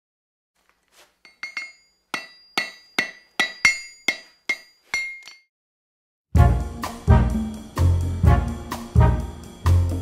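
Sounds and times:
sharp metallic strikes ringing: 1.4s - 5.4s.

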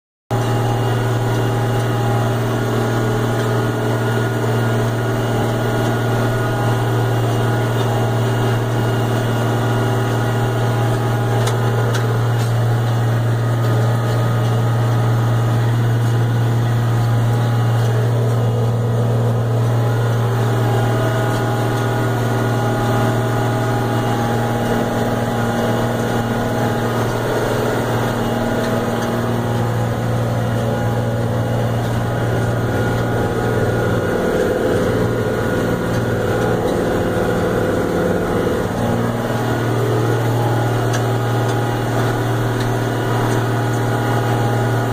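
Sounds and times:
tractor diesel engine droning: 0.3s - 44.9s.

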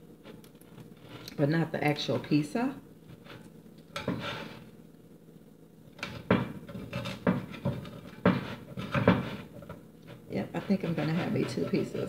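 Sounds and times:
knife sawing through crunchy crust: 4.0s - 4.7s, 6.7s - 12.0s.

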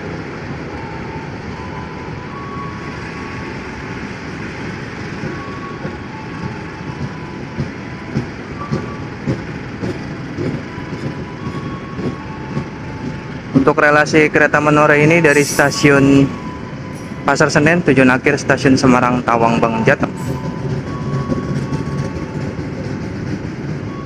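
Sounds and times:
train coaches rumbling on rails: 0.0s - 24.0s
wheels clacking over rail joints: 3.9s - 14.8s, 19.2s - 24.0s.

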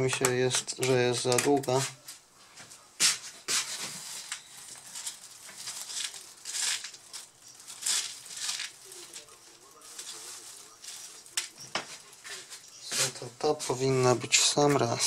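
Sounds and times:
small parts scraping and rustling: 3.1s - 15.0s.

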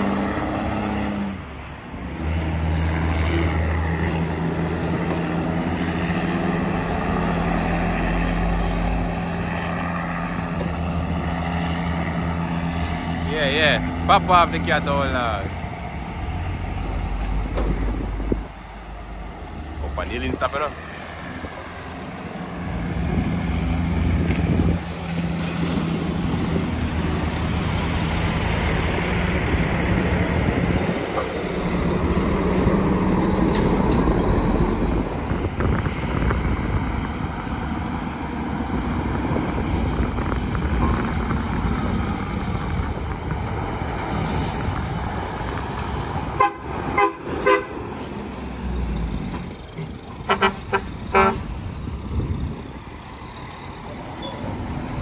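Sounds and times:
diesel trucks labouring uphill: 0.0s - 55.0s
vehicle horn short toots: 46.4s - 47.7s, 50.3s - 51.4s.

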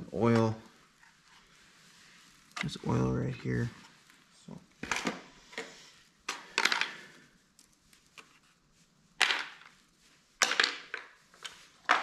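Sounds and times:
hard plastic parts clacking: 6.3s - 7.1s, 10.4s - 12.0s.

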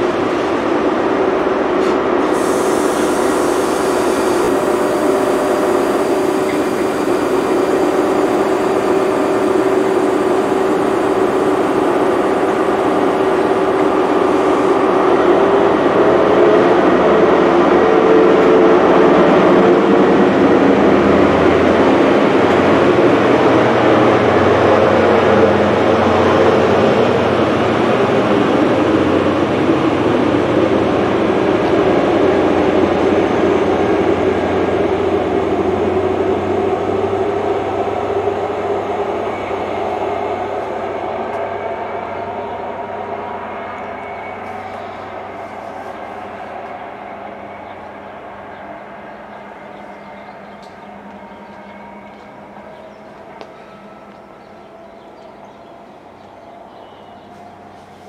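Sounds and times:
train diesel engine revving: 0.0s - 58.0s.

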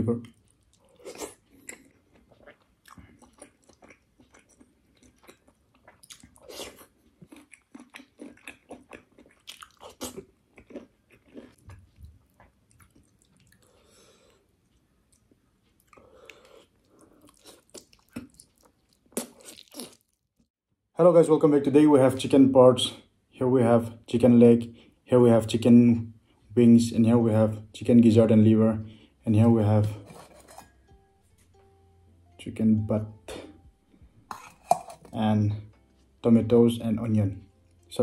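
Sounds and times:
person chewing food: 0.2s - 20.2s, 33.3s - 35.1s.

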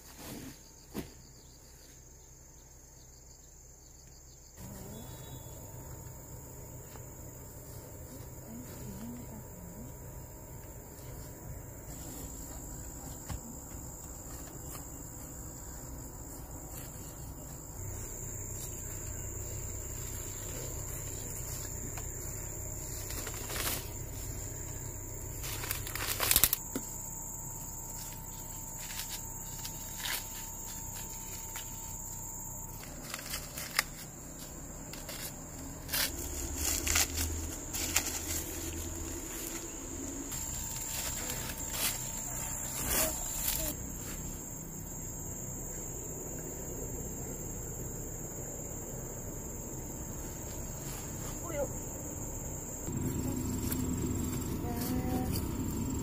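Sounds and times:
insects trilling: 0.0s - 56.0s
dry corn stalks rustling: 14.0s - 27.0s, 27.6s - 44.5s.

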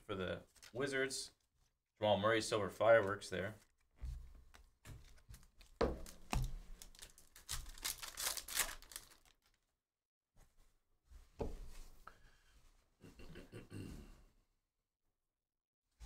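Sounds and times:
foil wrapper crinkling and tearing: 5.0s - 9.7s.

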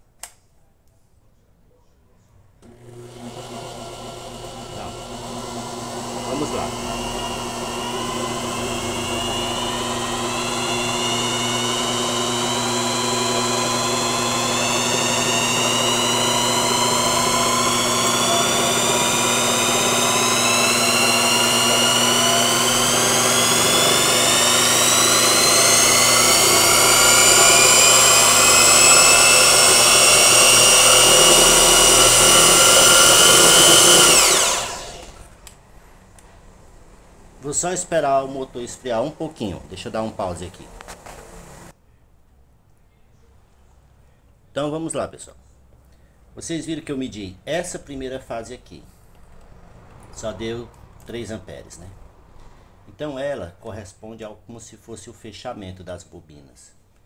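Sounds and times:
electric motor whine: 2.6s - 35.3s.

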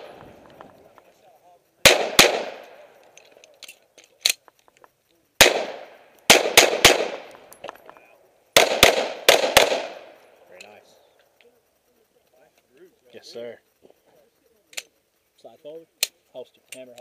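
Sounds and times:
pistol shots echoing: 1.8s - 3.0s, 5.4s - 7.5s, 8.6s - 10.2s.

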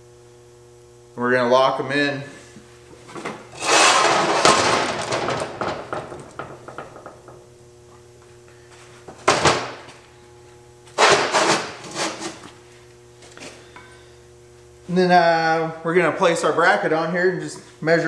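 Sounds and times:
knocks and clatter: 3.1s - 7.4s
rubbing scrape on workbench: 3.6s - 4.6s, 11.0s - 12.4s.

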